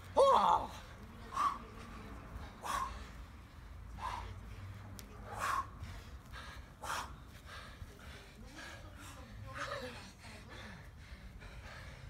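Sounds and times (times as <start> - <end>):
people breathing out sharply: 2.6 - 9.3, 9.9 - 12.0.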